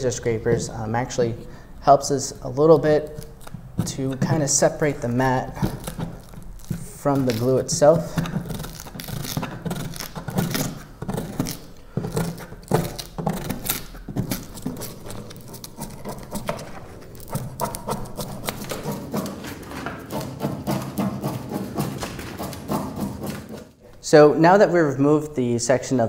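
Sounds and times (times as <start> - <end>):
scraper tearing foam mat: 3.0 - 23.8.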